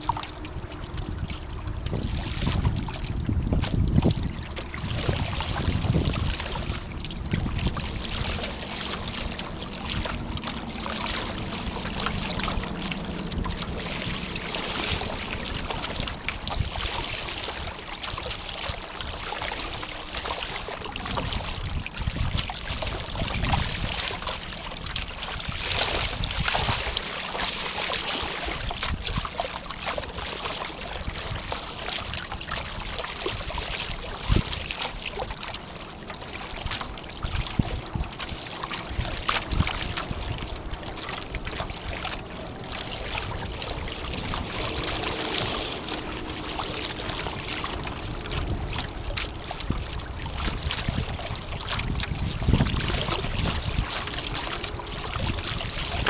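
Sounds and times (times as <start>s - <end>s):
water splashing along hull: 0.0s - 56.0s
wind on microphone: 0.0s - 56.0s.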